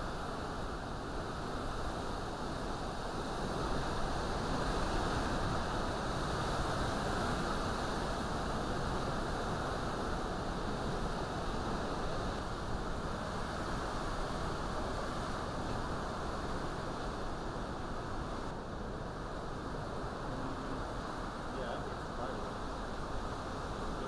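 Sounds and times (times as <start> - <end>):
strong wind through trees: 0.0 - 24.0
driving rain: 17.8 - 24.0.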